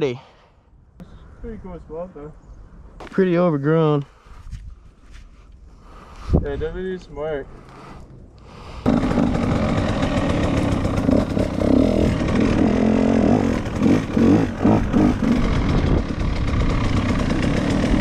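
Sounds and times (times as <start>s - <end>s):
dirt bike engine revving: 8.8s - 18.0s.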